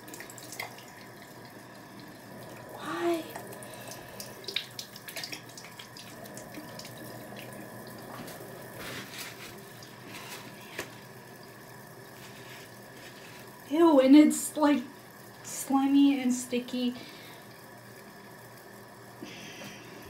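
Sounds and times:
water splashes and drips: 0.0s - 13.7s
sink tap running: 0.0s - 20.0s
hands rubbed under water: 8.2s - 10.9s, 12.2s - 13.6s.

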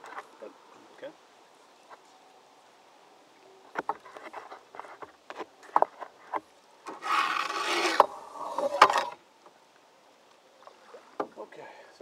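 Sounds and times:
rough scraping on canoe: 3.8s - 9.2s.

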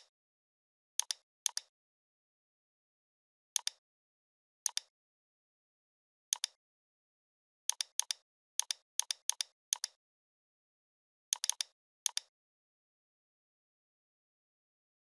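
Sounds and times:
computer mouse clicking: 1.0s - 1.7s, 3.6s - 3.8s, 4.7s - 4.9s, 6.3s - 6.6s, 7.7s - 10.0s, 11.3s - 12.3s.

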